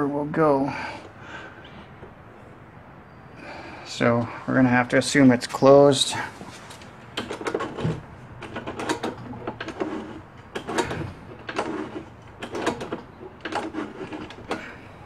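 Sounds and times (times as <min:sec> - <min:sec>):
metal linkage clicking and rattling: 0:06.7 - 0:14.8.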